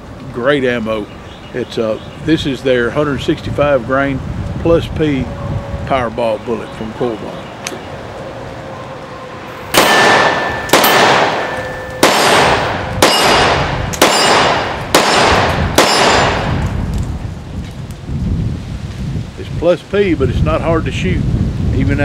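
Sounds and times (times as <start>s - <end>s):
pistol shots with ringing decay: 9.7s - 16.7s.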